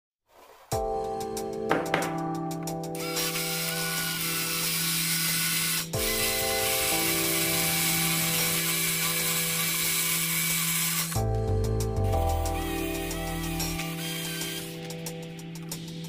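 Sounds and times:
power drill cutting wood: 3.0 - 11.3, 12.0 - 15.0.

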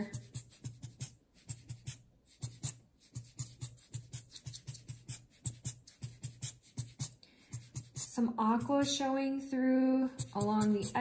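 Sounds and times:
rubber bulb blower puffs: 10.1 - 11.0.

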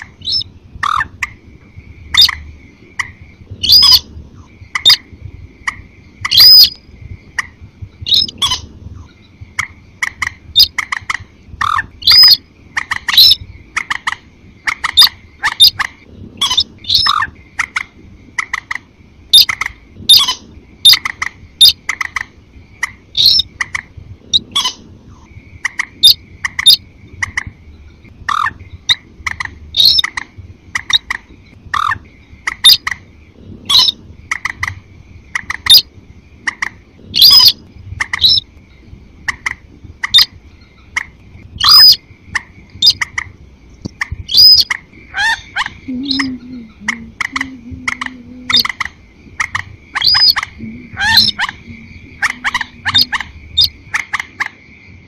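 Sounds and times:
high bird trill: 0.0 - 54.5
sharp bird calls: 0.0 - 54.6.

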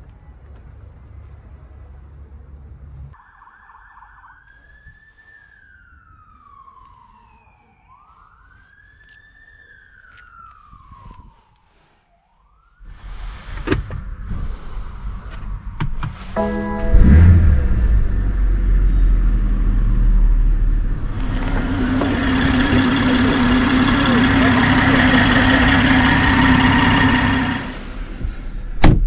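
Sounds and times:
faint siren wailing: 3.2 - 13.1, 20.7 - 27.8
car engine starting: 13.2 - 29.0
car engine idling: 16.5 - 28.6.

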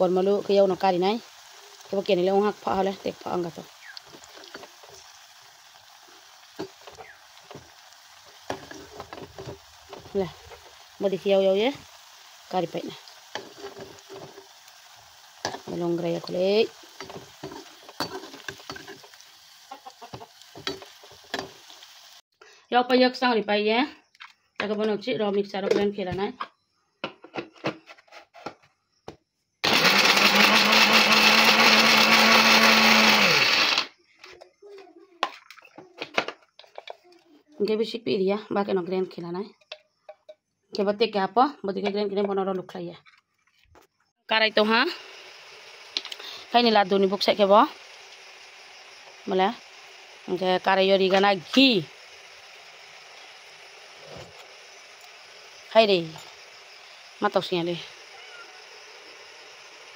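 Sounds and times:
oil sizzling: 0.0 - 22.3, 29.6 - 34.0, 44.3 - 59.9
mixer grinder running: 29.6 - 33.9, 44.4 - 59.9.

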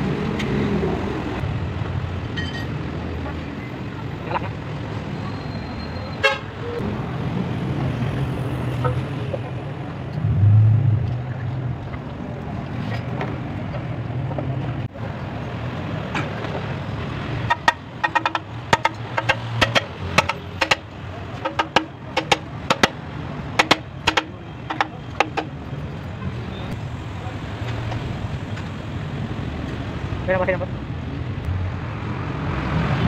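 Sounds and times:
steady low hum: 10.2 - 11.5.

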